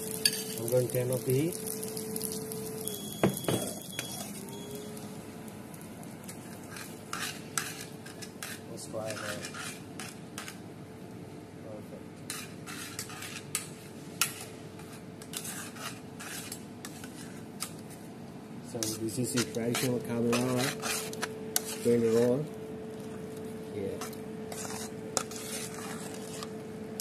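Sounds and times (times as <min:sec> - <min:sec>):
faint steady hum: 0:00.0 - 0:27.0
short high beep: 0:02.8 - 0:04.9
tongs scraping steel pan: 0:12.3 - 0:17.4, 0:18.8 - 0:22.4, 0:24.0 - 0:26.5.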